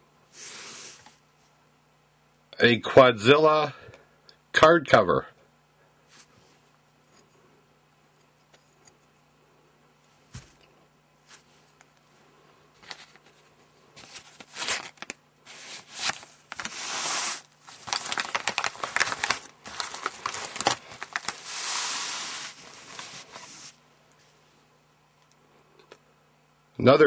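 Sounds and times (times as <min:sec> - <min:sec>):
packaging crinkling and tearing: 0:14.0 - 0:23.7.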